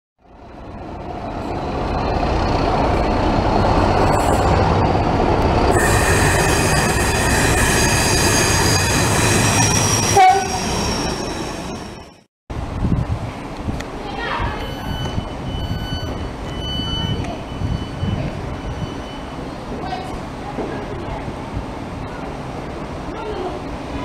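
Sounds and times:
diesel locomotive passing: 0.2s - 12.8s.

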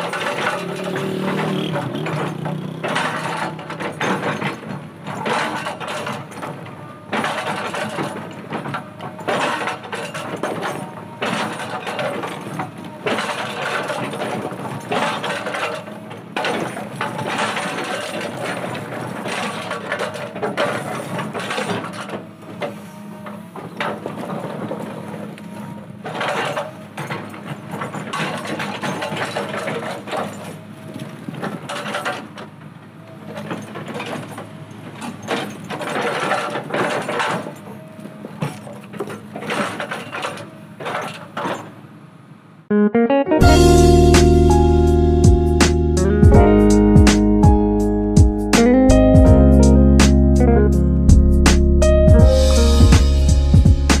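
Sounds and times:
diesel engine running: 0.0s - 16.1s, 43.4s - 54.0s
hydraulic rock breaker hammering: 0.0s - 41.8s.

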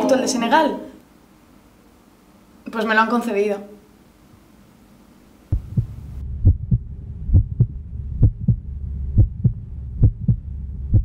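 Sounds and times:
low steady hum: 0.0s - 11.0s
heartbeat thumps: 5.5s - 11.0s.

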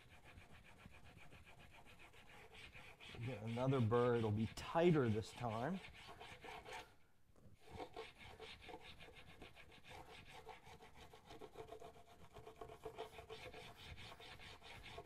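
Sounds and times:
chisel rasping on sharpening stone: 0.0s - 6.9s, 7.6s - 15.0s.

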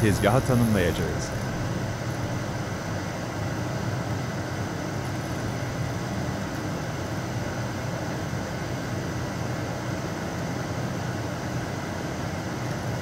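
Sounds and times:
lathe machine hum: 0.0s - 13.0s.

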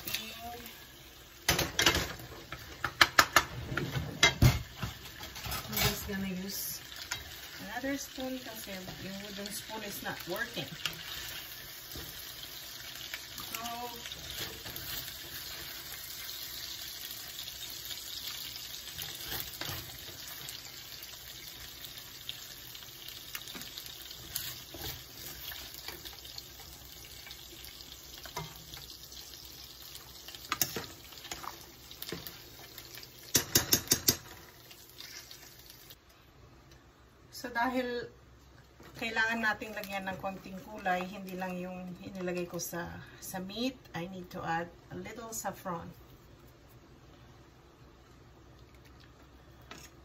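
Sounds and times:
porridge boiling and bubbling: 6.6s - 36.0s.

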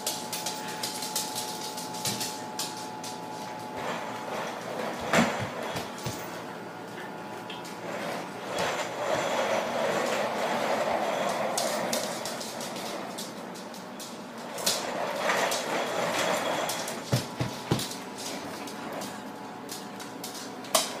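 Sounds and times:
plastic wheels rolling on wood floor: 0.0s - 6.5s, 7.6s - 21.0s.

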